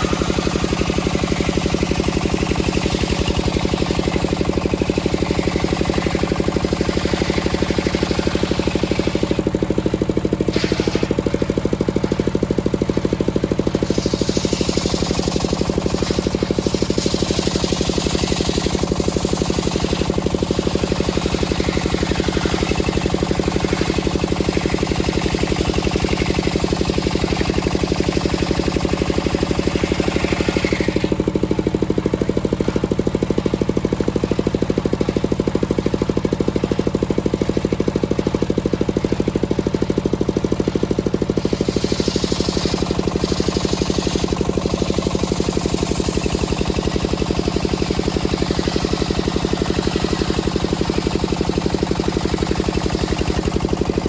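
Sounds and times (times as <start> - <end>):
sawmill engine drone: 0.0 - 54.0
saw blade cutting wood hiss: 10.4 - 11.4, 13.7 - 31.2, 41.4 - 49.1.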